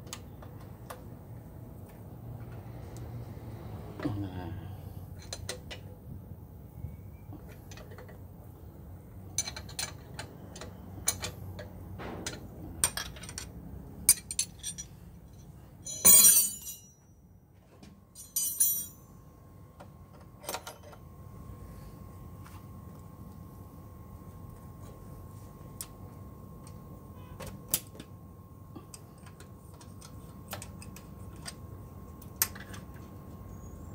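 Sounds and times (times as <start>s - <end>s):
metal spanners clinking on bolts: 9.4s - 17.0s, 18.2s - 19.0s
jangle of metal tools: 14.1s - 17.0s, 18.2s - 19.1s.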